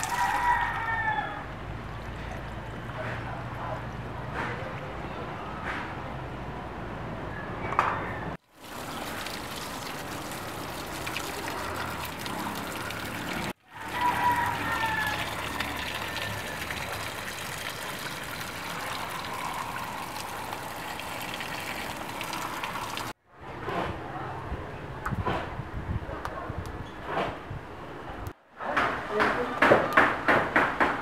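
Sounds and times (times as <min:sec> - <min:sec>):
hands rinsing vegetables: 0:00.0 - 0:00.4, 0:08.5 - 0:23.1
water splashing into plastic basin: 0:08.5 - 0:23.1.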